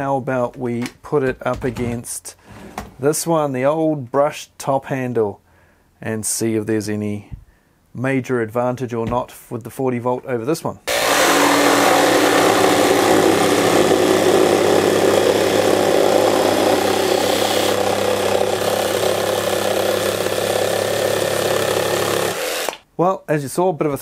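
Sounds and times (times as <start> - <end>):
jigsaws cutting wood: 10.9 - 22.8.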